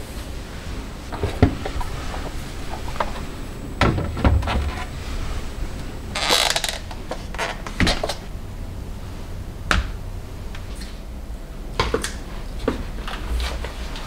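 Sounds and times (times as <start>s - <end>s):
plastic containers scraping: 0.8s - 8.2s.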